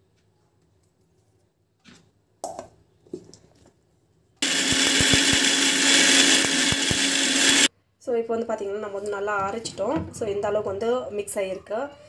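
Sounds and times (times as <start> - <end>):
mixer grinder running: 4.4 - 7.7.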